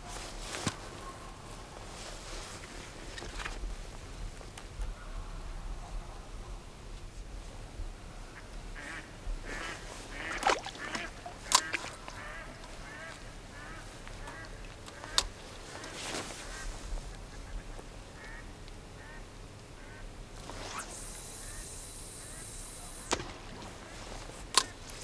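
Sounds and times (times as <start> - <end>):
ducks quacking: 8.8 - 19.2.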